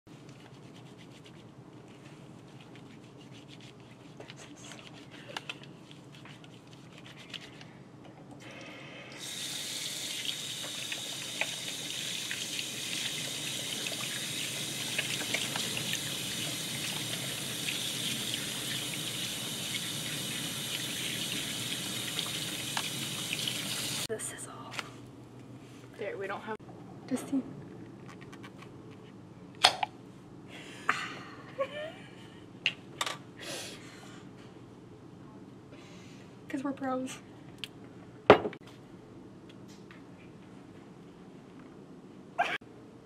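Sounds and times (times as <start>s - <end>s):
faucet running onto hands: 9.2s - 24.1s.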